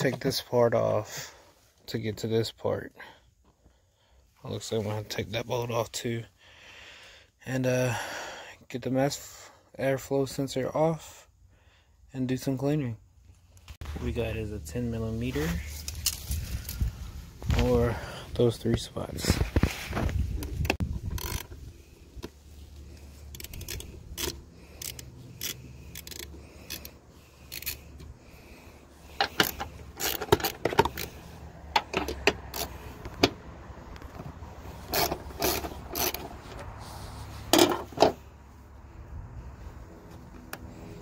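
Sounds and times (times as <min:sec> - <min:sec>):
socket ratchet clicking: 0:21.0 - 0:21.6, 0:23.3 - 0:28.0, 0:29.2 - 0:31.2, 0:31.8 - 0:32.8, 0:34.9 - 0:36.3
metal parts clinking: 0:23.3 - 0:28.0, 0:29.1 - 0:31.2, 0:34.8 - 0:36.4.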